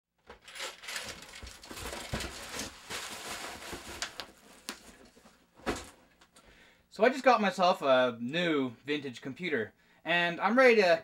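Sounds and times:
bubble wrap crinkling: 0.4s - 5.4s.

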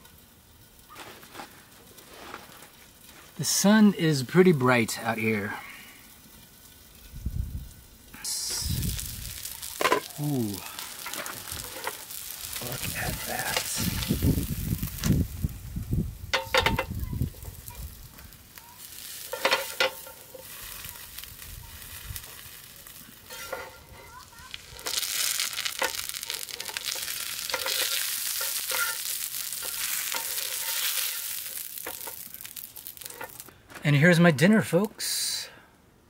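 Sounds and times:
vegetables sizzling in pan: 0.0s - 33.6s.

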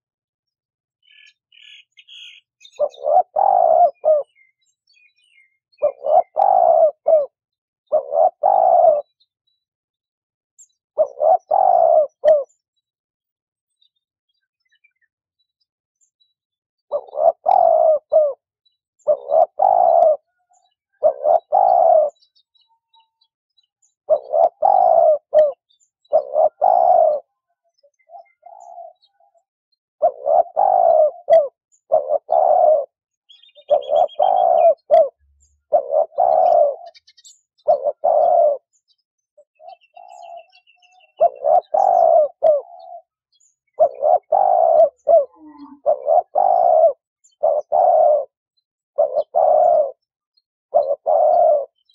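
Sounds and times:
small bird chirping: 1.0s - 9.8s, 13.6s - 51.9s
dove cooing: 1.1s - 9.2s, 11.0s - 12.6s, 16.9s - 22.4s, 24.0s - 29.4s, 30.0s - 38.8s, 39.4s - 50.1s, 50.7s - 51.9s.

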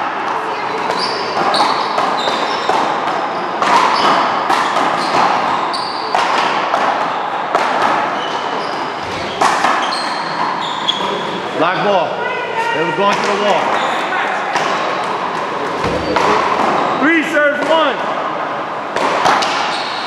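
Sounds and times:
sneakers squeaking: 0.0s - 11.6s, 12.6s - 17.2s, 19.2s - 20.0s
ball hitting paddles and wall: 0.2s - 10.6s, 13.0s - 13.8s, 14.5s - 17.0s, 17.6s - 18.0s, 18.9s - 20.0s.

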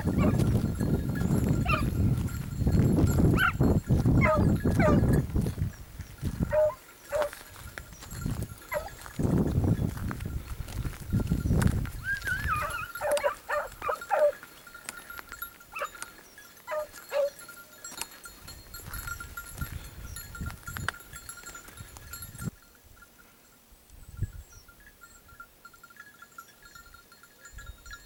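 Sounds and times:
distant hounds baying and yelping: 0.0s - 5.4s, 6.2s - 8.0s, 8.6s - 9.2s, 11.9s - 18.2s.

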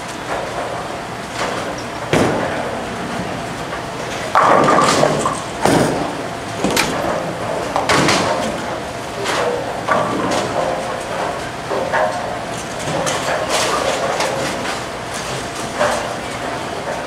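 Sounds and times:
bowling balls rolling: 0.3s - 14.8s
bowling pins crashing: 2.1s - 3.5s, 4.2s - 8.6s.

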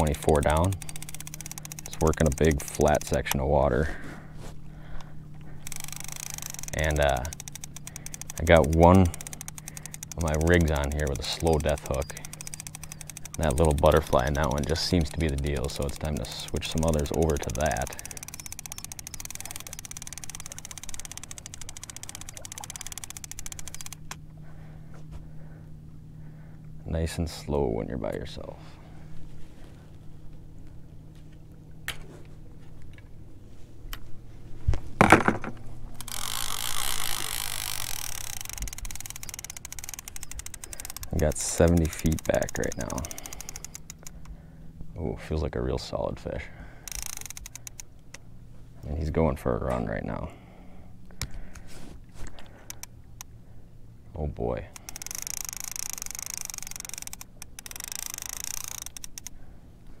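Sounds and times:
fishing reel clicker ratcheting: 0.0s - 3.5s, 5.0s - 24.3s, 36.0s - 44.4s, 46.2s - 48.3s, 52.3s - 53.4s, 54.5s - 60.0s
low steady hum: 0.0s - 60.0s.

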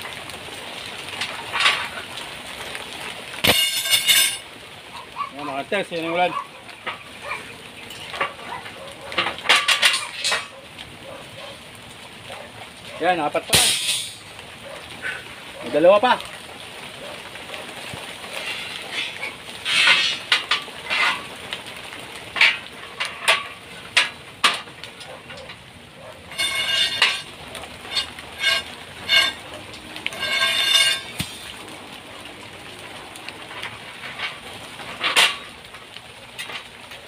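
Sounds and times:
metal-on-metal scraping: 1.1s - 2.1s, 3.4s - 4.4s, 6.7s - 10.6s, 13.5s - 14.3s, 18.2s - 21.5s, 22.2s - 31.5s, 33.5s - 35.7s
metal bars clinking: 3.4s - 4.4s, 9.1s - 10.6s, 13.5s - 14.3s, 18.4s - 21.3s, 22.3s - 31.5s.

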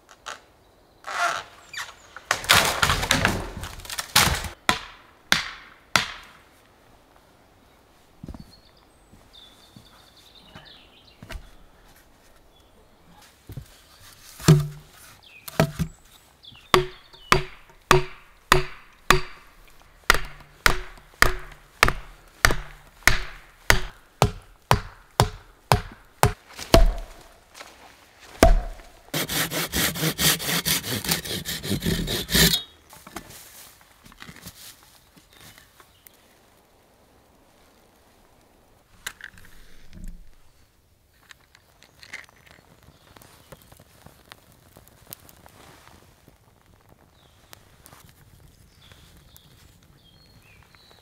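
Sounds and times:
mallet knocking wooden stake: 14.4s - 14.9s, 15.5s - 15.9s, 16.7s - 27.3s, 28.4s - 28.9s
saw cutting log: 28.4s - 32.7s.

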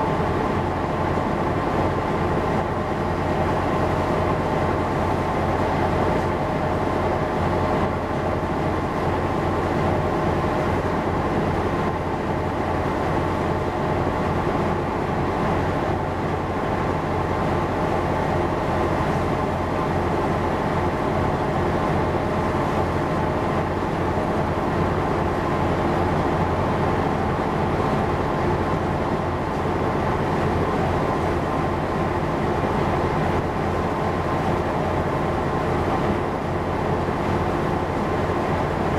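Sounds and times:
ship engine droning: 0.0s - 38.9s.

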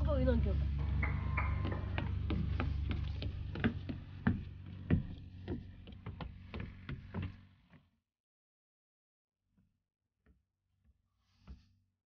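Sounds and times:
low rumble: 0.0s - 5.8s
footsteps on wooden planks: 1.4s - 7.8s.

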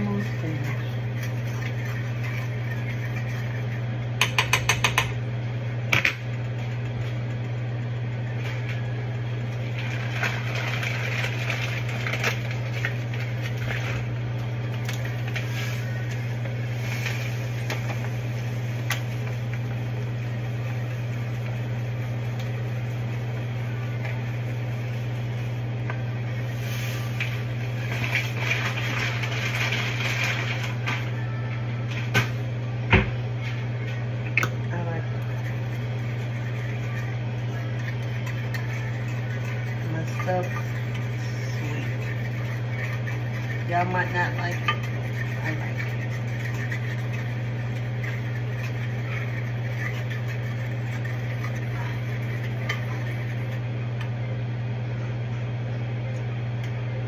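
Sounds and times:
range hood fan hum: 0.0s - 57.0s
rustling and clinking pots: 37.7s - 53.3s.

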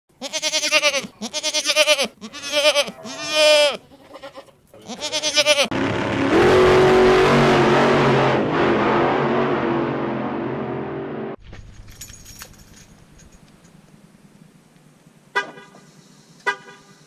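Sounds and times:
goats bleating: 0.2s - 5.8s
loud car engine running: 5.7s - 11.4s.

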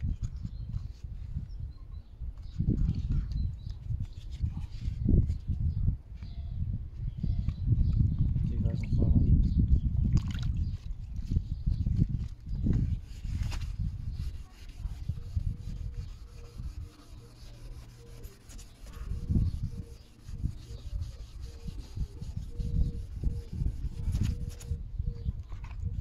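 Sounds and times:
hand rubbing plastic lens: 11.2s - 24.8s.

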